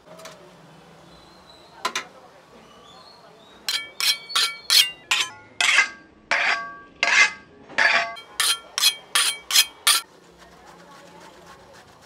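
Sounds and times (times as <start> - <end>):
knife scraping on honing steel: 3.6 - 10.1.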